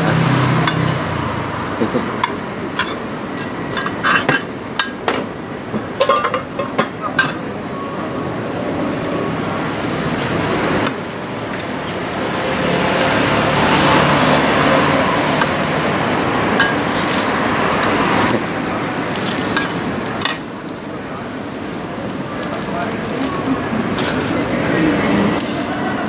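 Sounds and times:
motor vehicle passing: 0:00.0 - 0:02.4, 0:11.6 - 0:20.2
street traffic noise: 0:00.0 - 0:26.0
metal spatula clinking on griddle: 0:02.2 - 0:05.0.

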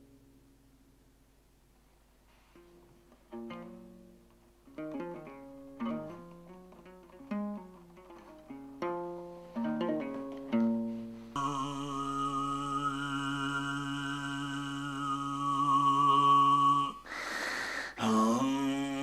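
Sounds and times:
plucked lute notes: 0:02.3 - 0:16.9
man throat singing: 0:11.4 - 0:19.0
noisy breath: 0:17.0 - 0:18.2.

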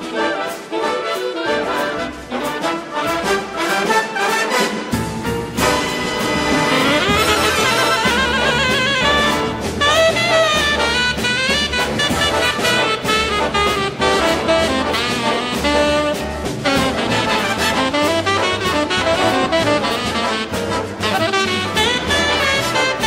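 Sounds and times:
jazz big band playing: 0:00.0 - 0:23.0
tenor saxophone solo: 0:05.8 - 0:23.0.

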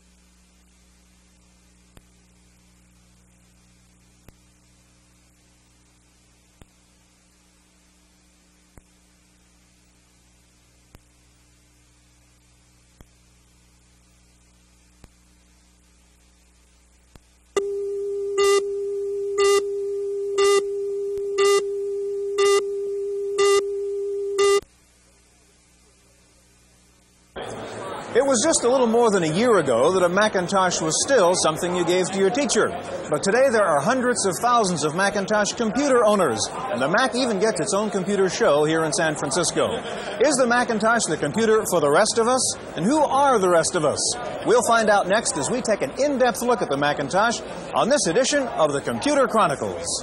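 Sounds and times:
low steady hum: 0:00.0 - 0:50.0
short beeps: 0:17.6 - 0:24.6
electronic test tone: 0:17.6 - 0:24.7.

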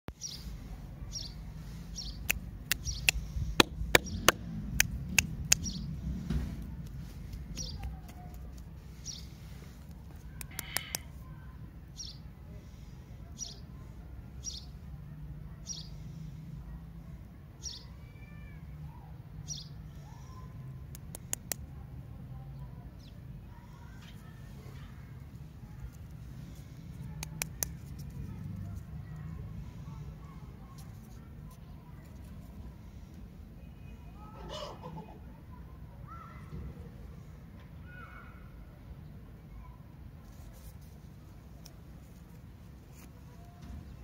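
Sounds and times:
bird chirping: 0:00.2 - 0:04.4
lollipop wrappers clicking: 0:27.1 - 0:28.2.

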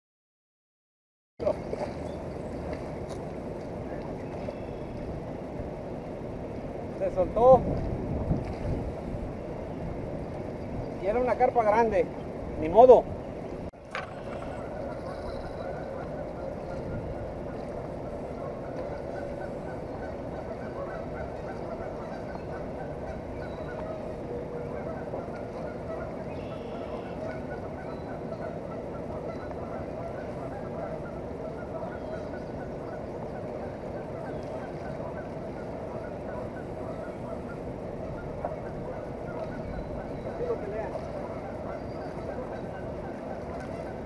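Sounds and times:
birds honking: 0:13.8 - 0:44.0.

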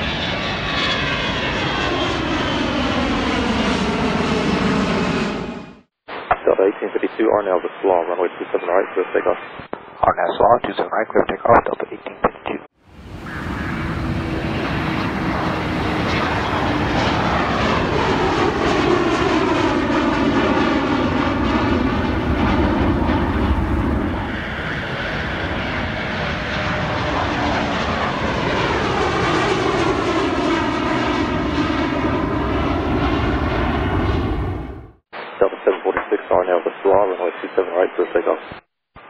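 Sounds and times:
jet engines roaring overhead: 0:00.0 - 0:05.9, 0:12.9 - 0:35.0.

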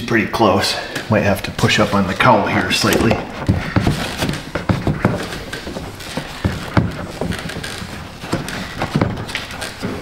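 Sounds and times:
plastic scraping: 0:01.6 - 0:10.0
hard plastic knocking: 0:02.8 - 0:10.0.

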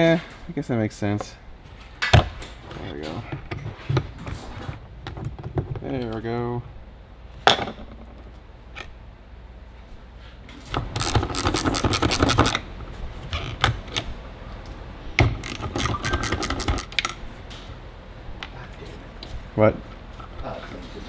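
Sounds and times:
clicking and scraping metal parts: 0:15.4 - 0:17.2.

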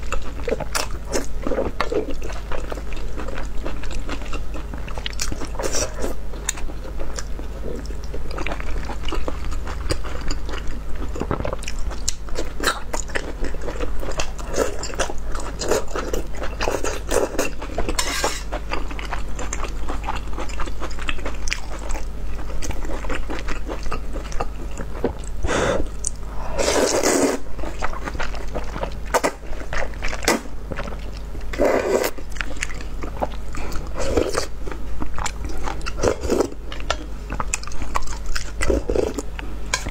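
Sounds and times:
wet chewing: 0:00.0 - 0:39.9
slurping noodles: 0:25.4 - 0:27.4, 0:31.6 - 0:32.2.

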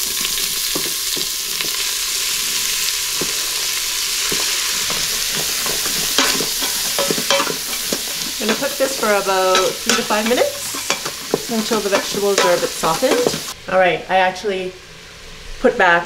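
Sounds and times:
vegetables sizzling in butter: 0:00.0 - 0:13.6
wooden spoon scraping a pot: 0:02.5 - 0:13.6.

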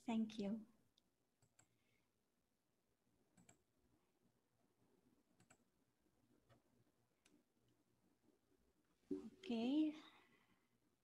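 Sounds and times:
computer mouse clicks: 0:01.4 - 0:01.8, 0:03.3 - 0:03.7, 0:05.4 - 0:05.7.

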